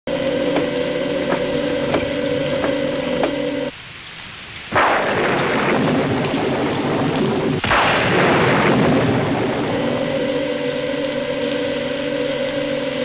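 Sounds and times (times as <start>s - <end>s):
car engine hum: 0.0s - 3.7s
heavy rain: 0.1s - 13.0s
thunderclaps: 4.7s - 11.2s.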